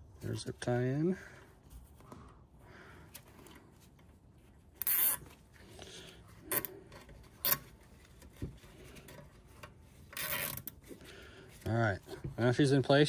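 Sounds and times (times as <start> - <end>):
zip ties rasping tight: 4.8 - 5.3, 6.5 - 6.8, 10.1 - 10.8.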